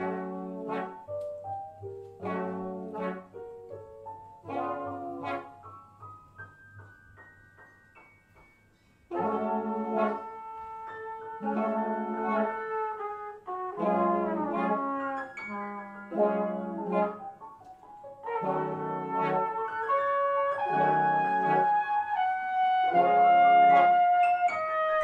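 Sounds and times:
brass section playing chord stabs: 0:00.0 - 0:01.2, 0:02.2 - 0:03.4, 0:04.4 - 0:05.7, 0:09.1 - 0:17.4, 0:18.2 - 0:25.0.

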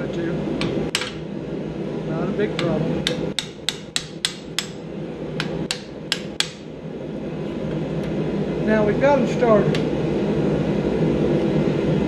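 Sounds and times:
hammer striking metal chisel: 0:02.6 - 0:04.8, 0:05.4 - 0:06.6.

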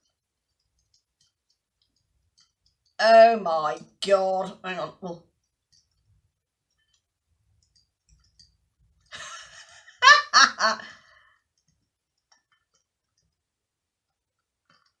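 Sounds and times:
woman laughing: 0:09.1 - 0:11.1.

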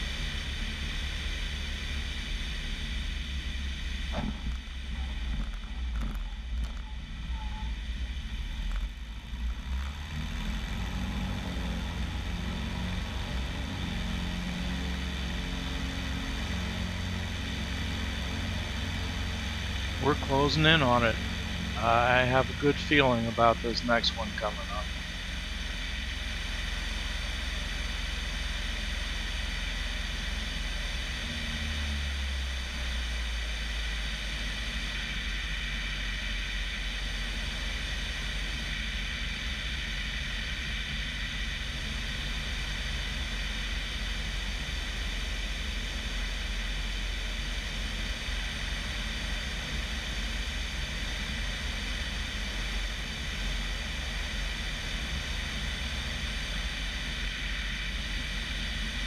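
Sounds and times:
propeller aircraft engine droning: 0:00.0 - 0:59.0.

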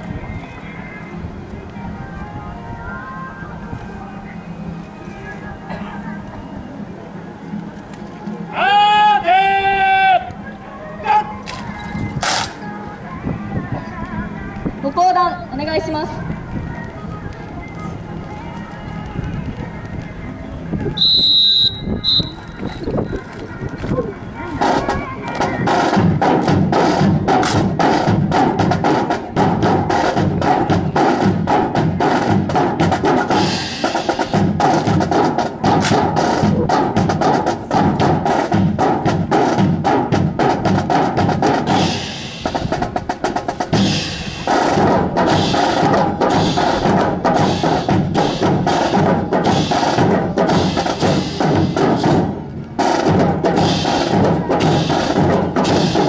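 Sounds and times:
band playing a march: 0:24.6 - 0:56.0
snare and bass drums: 0:24.6 - 0:56.0.

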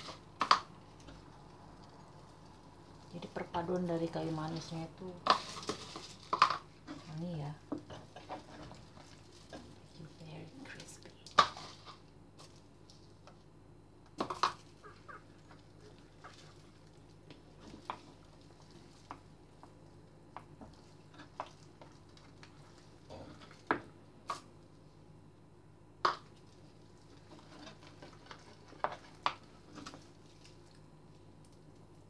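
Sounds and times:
faint steady hum: 0:00.0 - 0:32.0
hands squishing raw meat: 0:14.3 - 0:19.8.

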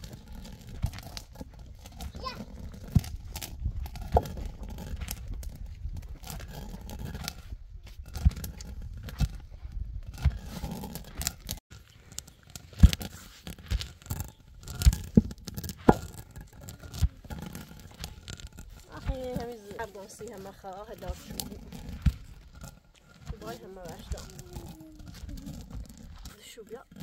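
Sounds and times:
stone quern grinding: 0:00.0 - 0:27.0
nuts cracking and clicking: 0:10.3 - 0:19.5.

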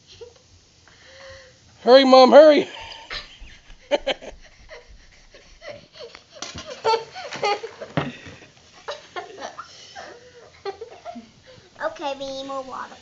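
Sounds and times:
girl giggling and laughing: 0:02.7 - 0:08.0, 0:08.8 - 0:11.5.

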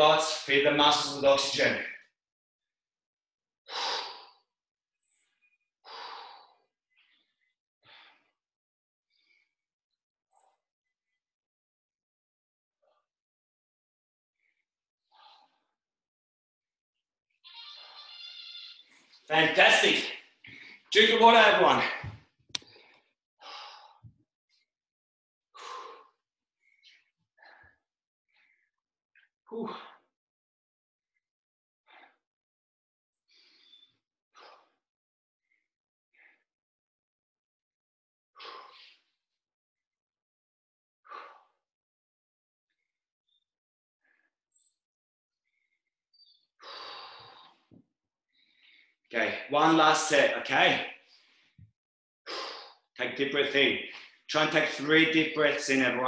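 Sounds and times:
man breathing hard: 0:03.7 - 0:04.4, 0:46.6 - 0:47.7.

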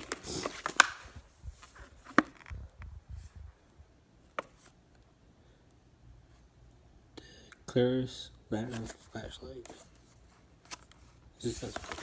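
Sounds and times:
plastic packaging rustling: 0:00.0 - 0:02.6, 0:10.7 - 0:12.0.

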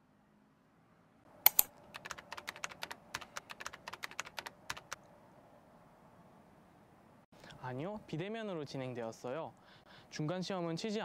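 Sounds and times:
keyboard typing clicks: 0:01.5 - 0:05.0.

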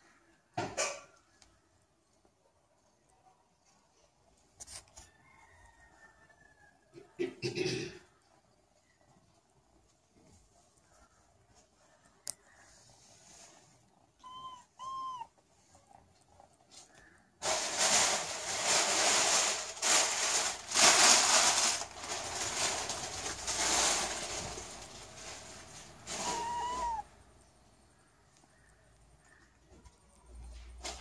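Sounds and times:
kitten mewing: 0:14.2 - 0:15.4, 0:26.0 - 0:27.1
rough rustling: 0:16.7 - 0:31.0.

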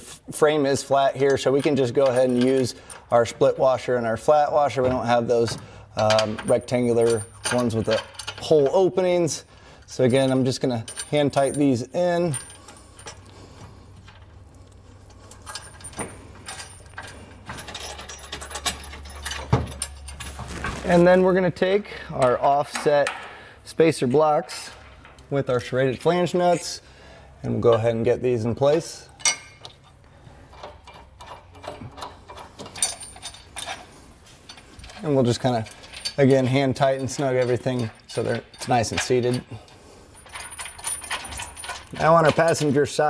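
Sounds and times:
metal hardware clicking and clinking: 0:00.8 - 0:03.5, 0:04.7 - 0:20.8, 0:28.6 - 0:43.0
metallic clicks of bolts and washers: 0:05.4 - 0:08.8, 0:28.7 - 0:33.9.

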